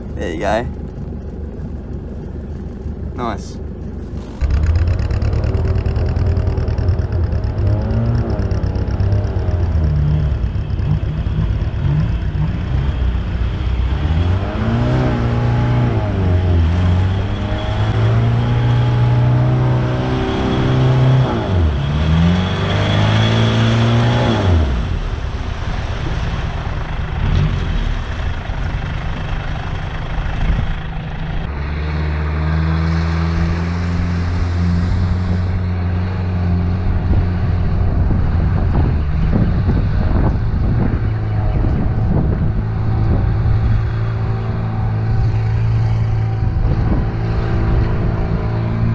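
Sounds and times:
diesel engine revving: 3.2 - 48.9.

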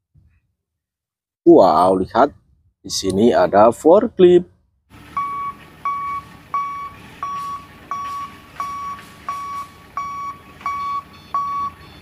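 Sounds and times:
reversing alarm beeping: 5.1 - 12.0.

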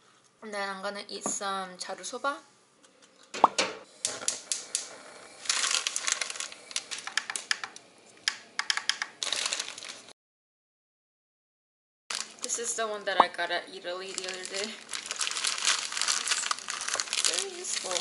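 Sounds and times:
dry noodles clicking and rattling: 4.1 - 10.0, 14.0 - 18.0
plastic crinkling: 4.2 - 7.8, 9.1 - 10.1, 12.1 - 12.9, 13.7 - 18.0.

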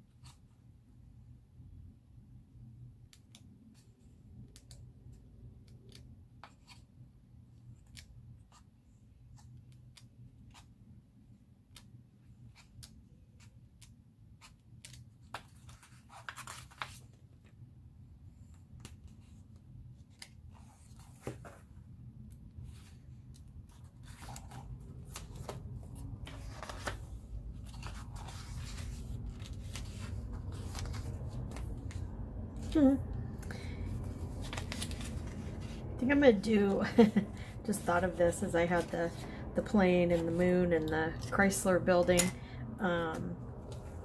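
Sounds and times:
book pages turning: 5.6 - 6.9, 11.6 - 17.6, 18.4 - 37.8, 43.6 - 44.0
paper rustling: 14.4 - 17.4, 22.6 - 35.9
low hum: 20.5 - 44.0.

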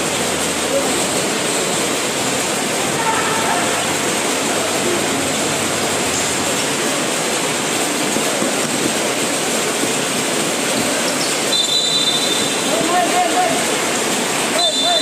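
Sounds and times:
din of spectators and players: 0.0 - 15.0.

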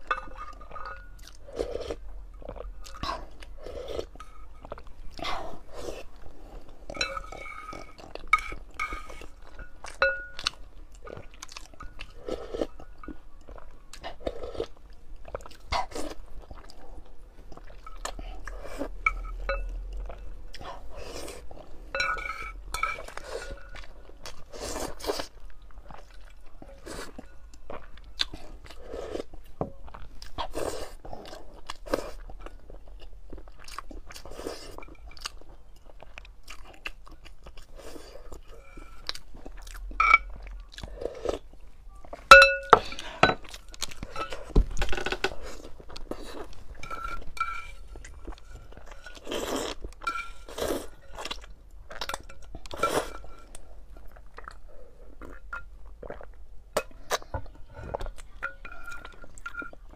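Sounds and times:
chopsticks clinking on stone bowl: 6.9 - 10.6, 21.9 - 23.8, 40.0 - 40.4, 42.3 - 43.4.

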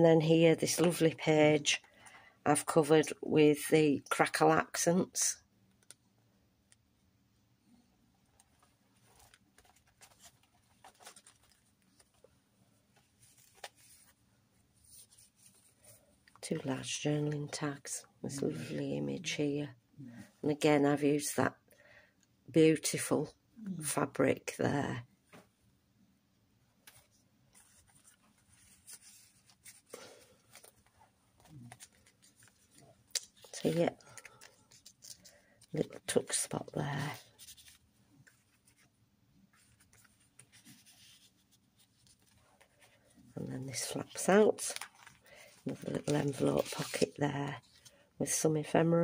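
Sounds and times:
paper pages rustling: 8.4 - 14.2, 14.8 - 17.6, 26.8 - 48.0.

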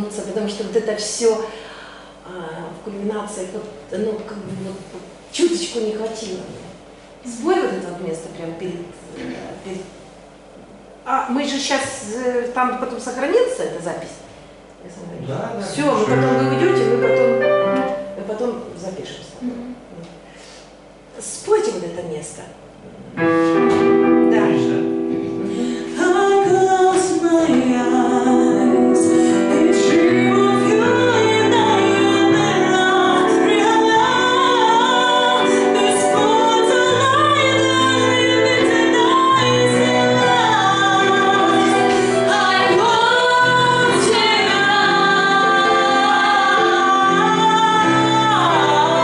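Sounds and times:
digital piano chords: 15.7 - 18.4, 23.2 - 49.0
woman singing a slow ballad: 25.0 - 49.0.

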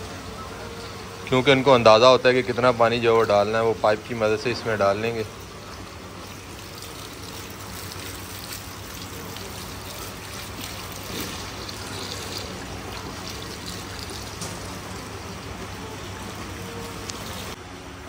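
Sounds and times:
water pouring from hose into tub: 6.0 - 17.6.

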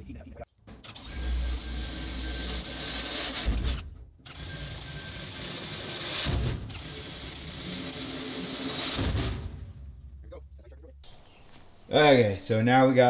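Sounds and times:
power drill boring into steel: 0.8 - 3.6, 4.3 - 9.0.

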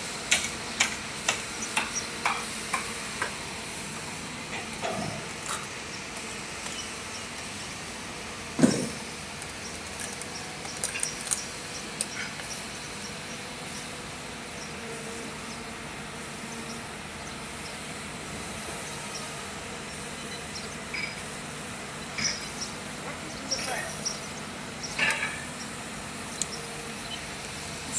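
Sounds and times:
construction machinery engine hum: 0.0 - 27.9
sharp knocks: 8.6 - 9.0.

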